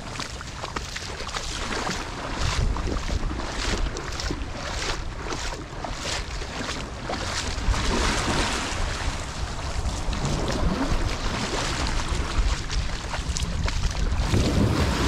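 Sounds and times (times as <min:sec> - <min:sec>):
wind rumbling on microphone: 0:00.0 - 0:15.0
surf washing onto beach: 0:07.5 - 0:15.0.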